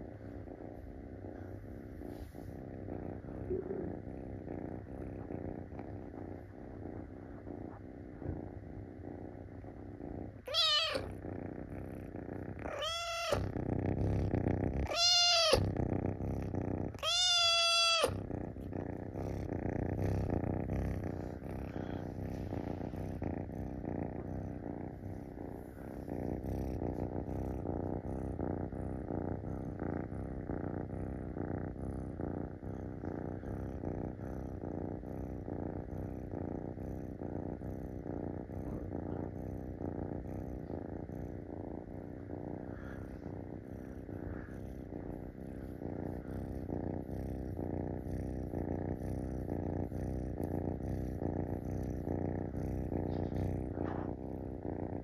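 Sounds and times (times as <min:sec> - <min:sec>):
kitten purring: 0:00.0 - 0:55.0
kitten meowing: 0:10.4 - 0:11.1, 0:12.7 - 0:13.5, 0:14.8 - 0:15.7, 0:17.0 - 0:18.2.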